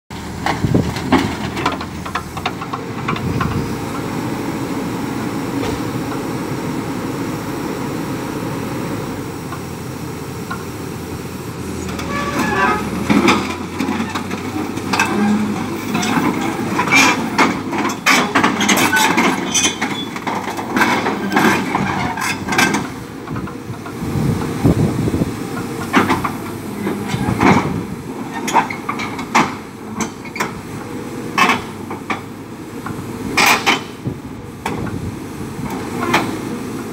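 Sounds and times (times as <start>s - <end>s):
diesel engine running: 0.1s - 36.9s
metallic clanks and creaks: 0.4s - 3.6s, 11.8s - 24.0s, 31.4s - 32.3s, 33.4s - 34.0s.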